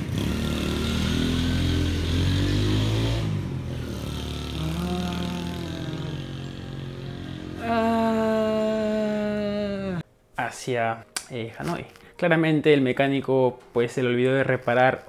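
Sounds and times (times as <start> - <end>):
small motorcycle engine revving: 0.0 - 8.5.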